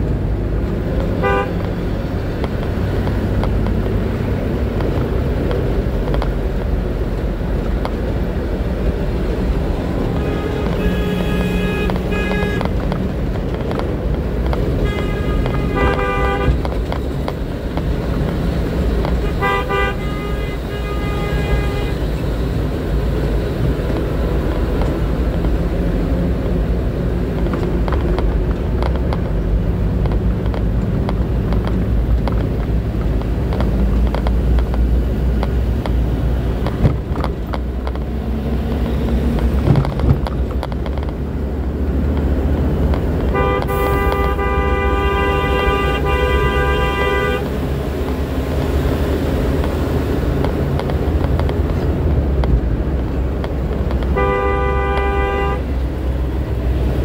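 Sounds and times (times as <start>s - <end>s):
vehicle engine and road rumble: 0.0s - 57.0s
car horn honking: 1.1s - 1.7s, 10.0s - 12.9s, 14.6s - 16.8s, 19.0s - 22.2s, 43.3s - 47.6s, 54.0s - 55.8s.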